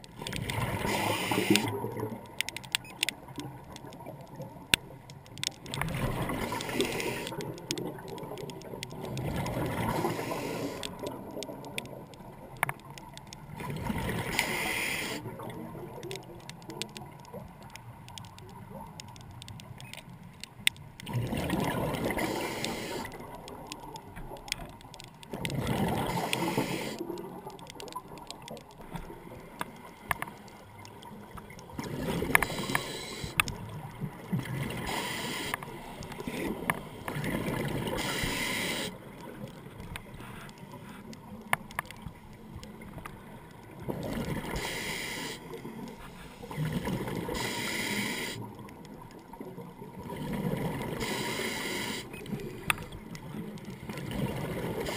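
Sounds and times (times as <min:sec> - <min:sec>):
diver breathing through regulator: 0:00.8 - 0:01.7, 0:06.4 - 0:07.4, 0:09.9 - 0:10.9, 0:14.2 - 0:15.2, 0:22.1 - 0:23.1, 0:26.1 - 0:27.0, 0:32.4 - 0:33.4, 0:34.8 - 0:35.6, 0:37.9 - 0:39.0, 0:44.5 - 0:46.6, 0:47.3 - 0:48.4, 0:51.0 - 0:52.2
bubbles rushing out: 0:21.1 - 0:22.3.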